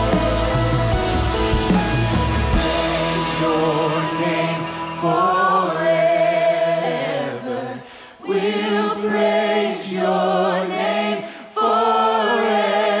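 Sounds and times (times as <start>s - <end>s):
acoustic guitar: 0.0s - 5.5s
drums: 0.0s - 5.6s
congregation singing: 0.0s - 13.0s.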